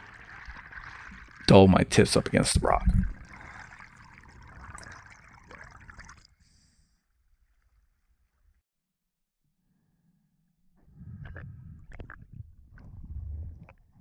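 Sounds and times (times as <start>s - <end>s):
muffled underwater rushing water: 0.0s - 7.0s.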